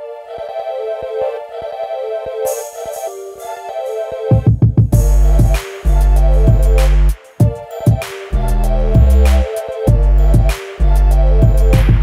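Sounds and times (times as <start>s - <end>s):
music with bass and drums: 4.4s - 12.0s.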